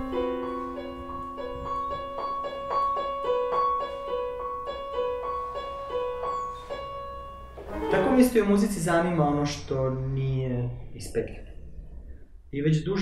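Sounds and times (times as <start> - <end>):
electronic keyboard single notes: 0.0 - 8.6.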